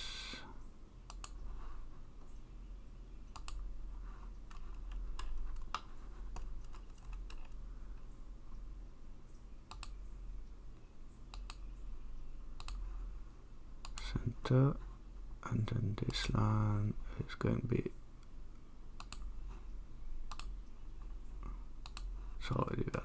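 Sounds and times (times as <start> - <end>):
mouse and keyboard clicks: 3.3 - 3.6, 4.4 - 7.6, 12.6 - 12.8.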